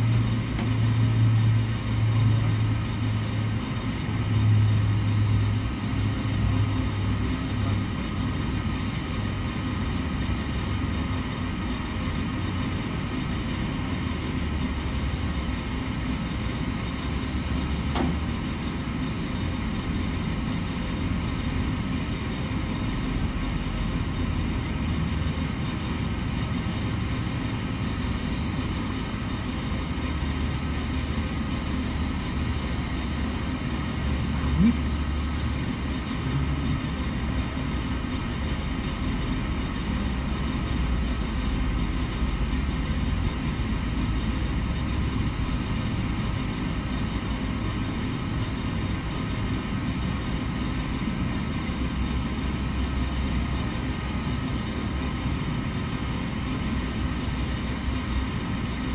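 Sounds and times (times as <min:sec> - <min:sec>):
machinery humming: 0:00.0 - 0:58.9
sharp click: 0:17.9 - 0:18.3.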